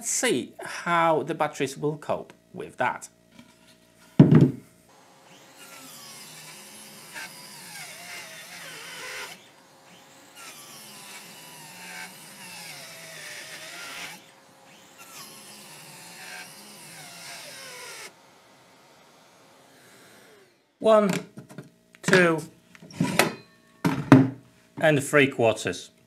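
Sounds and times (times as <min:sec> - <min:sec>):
circular saw cutting plywood: 0:04.9 - 0:20.8.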